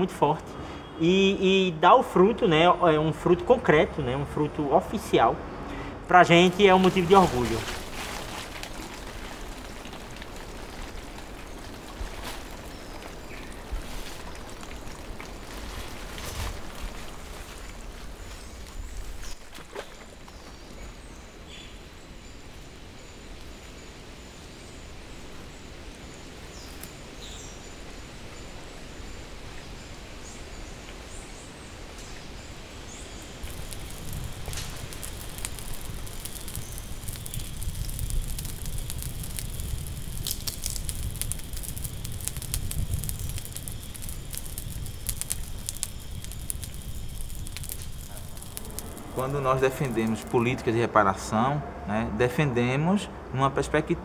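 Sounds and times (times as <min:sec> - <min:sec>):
outdoor ambience hiss: 0:00.0 - 0:54.0
wood fire crackling and popping: 0:06.3 - 0:19.6, 0:33.2 - 0:50.7
low rumble: 0:33.4 - 0:50.7.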